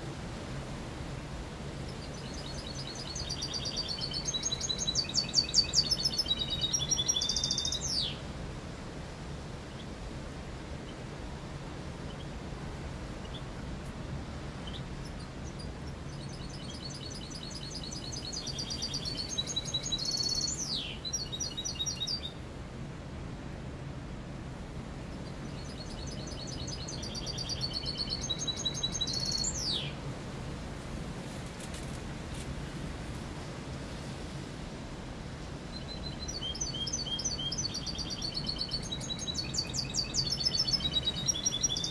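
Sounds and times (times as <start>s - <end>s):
finch singing rapid high trills: 16.3s - 22.3s, 25.6s - 29.9s.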